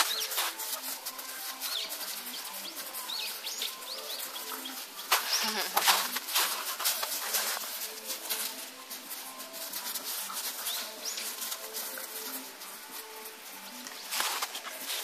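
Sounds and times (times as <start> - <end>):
birds chirping: 0.0 - 6.2
dogs scuffling in snow: 0.0 - 15.0.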